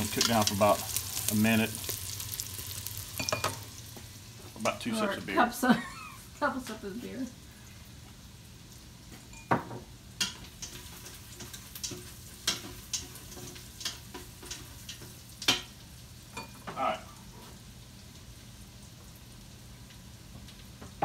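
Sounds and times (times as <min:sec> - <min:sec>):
utensil clinking and scraping pot: 0:00.0 - 0:03.7
onions sizzling: 0:00.0 - 0:21.0.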